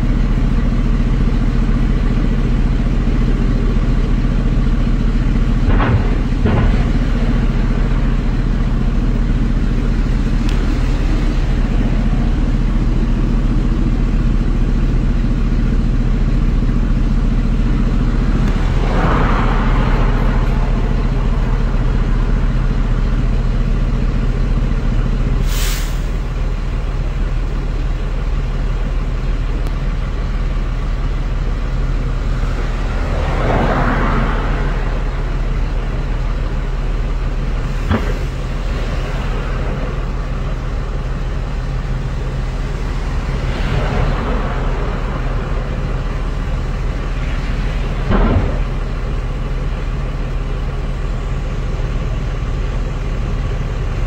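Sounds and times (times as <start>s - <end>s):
vehicle engine running: 0.0s - 54.0s
rush of noise: 16.0s - 24.2s, 31.7s - 52.1s
short hiss: 25.4s - 26.2s.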